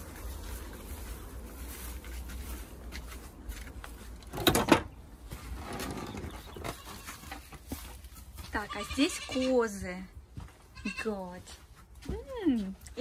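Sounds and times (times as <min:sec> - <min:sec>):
faint knocks and rustles: 0:00.2 - 0:08.6
wooden door unlatched and opened: 0:04.3 - 0:04.9.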